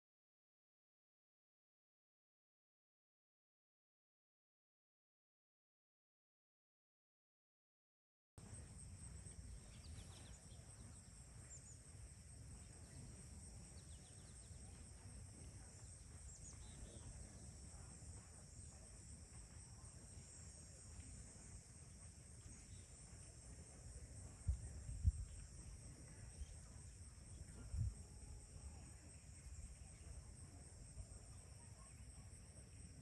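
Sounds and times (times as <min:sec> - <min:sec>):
insect chorus: 0:08.4 - 0:33.0
small birds chirping: 0:08.6 - 0:17.9.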